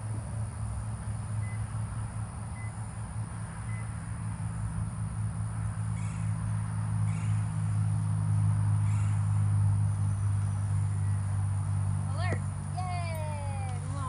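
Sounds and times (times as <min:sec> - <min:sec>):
high insect drone: 0:00.0 - 0:14.0
low engine hum: 0:00.0 - 0:14.0.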